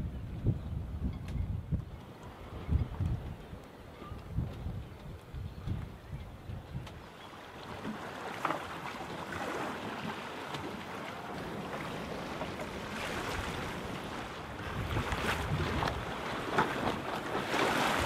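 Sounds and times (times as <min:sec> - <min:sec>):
wind buffeting microphone: 0:00.0 - 0:07.1, 0:11.8 - 0:18.0
water splashing along hull: 0:00.0 - 0:18.0.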